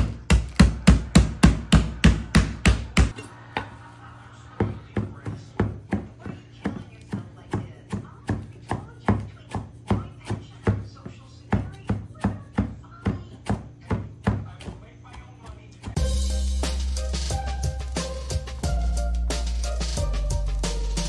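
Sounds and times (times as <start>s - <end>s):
knife chopping on wooden board: 0.0s - 3.2s, 4.6s - 16.0s
meat mallet pounding: 0.0s - 3.2s, 4.6s - 16.0s
background music: 16.0s - 21.0s.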